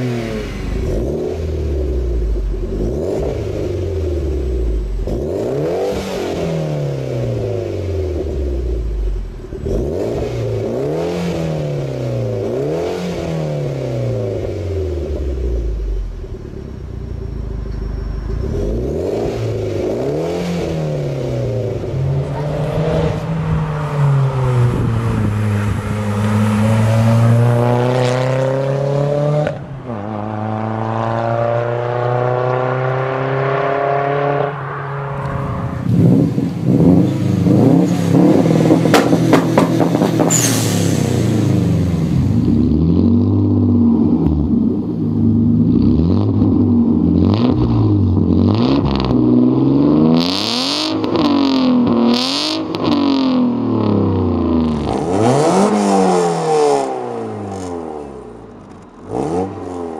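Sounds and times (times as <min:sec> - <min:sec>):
car accelerating hard: 0:00.0 - 0:15.8, 0:18.4 - 0:59.9
car engine revving at standstill: 0:00.0 - 0:59.9.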